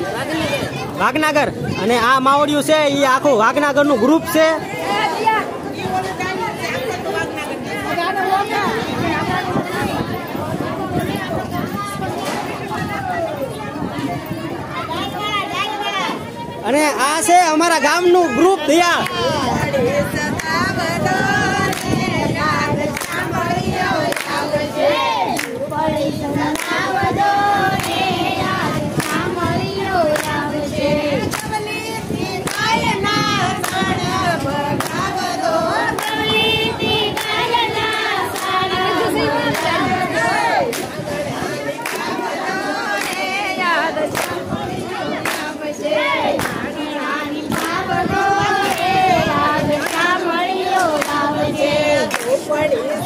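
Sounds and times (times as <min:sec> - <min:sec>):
women singing in unison: 0:04.5 - 0:16.3, 0:19.0 - 0:53.0
hands clapping: 0:19.0 - 0:19.3, 0:21.7 - 0:22.1, 0:22.9 - 0:23.3, 0:24.1 - 0:24.4, 0:25.3 - 0:25.6, 0:29.0 - 0:29.3, 0:30.1 - 0:30.4, 0:31.2 - 0:31.6, 0:32.4 - 0:33.9, 0:36.0 - 0:36.3, 0:37.1 - 0:38.6, 0:41.8 - 0:43.4, 0:44.0 - 0:44.4, 0:45.1 - 0:45.5, 0:46.3 - 0:46.6, 0:47.5 - 0:47.8, 0:48.6 - 0:49.0, 0:49.7 - 0:50.2, 0:50.8 - 0:51.2, 0:52.0 - 0:52.4
hands clapping in time: 0:47.5 - 0:47.8, 0:52.0 - 0:52.4.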